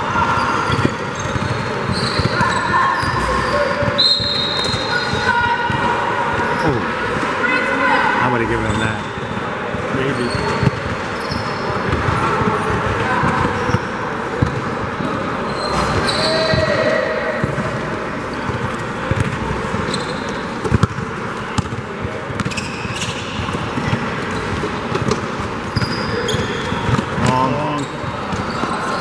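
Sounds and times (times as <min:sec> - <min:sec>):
sneaker squeaks: 0:00.0 - 0:29.0
basketball bouncing on court: 0:00.3 - 0:06.6, 0:09.2 - 0:14.8, 0:15.8 - 0:28.9.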